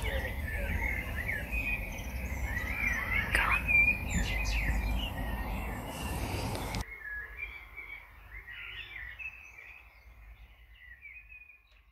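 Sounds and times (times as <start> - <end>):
low microphone rumble: 0.0 - 6.8
birds singing and chirping: 0.0 - 11.9.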